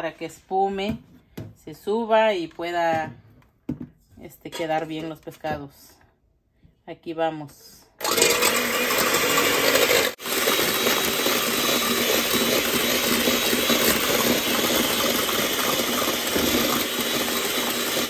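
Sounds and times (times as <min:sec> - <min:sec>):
egg whites beaten in a bowl: 0:08.0 - 0:18.0.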